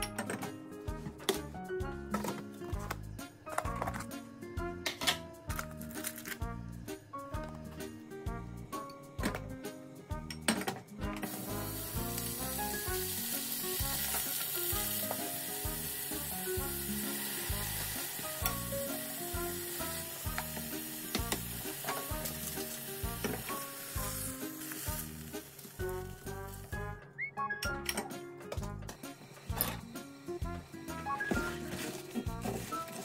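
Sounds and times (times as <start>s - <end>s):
food sizzling in a frying pan: 11.2s - 26.8s.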